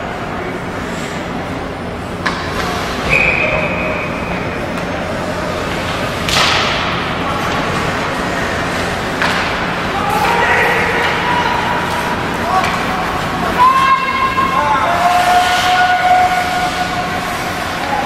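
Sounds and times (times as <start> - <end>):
high steady whistle: 3.0 - 4.1
puck slap echoing: 5.9 - 7.9, 9.1 - 11.2.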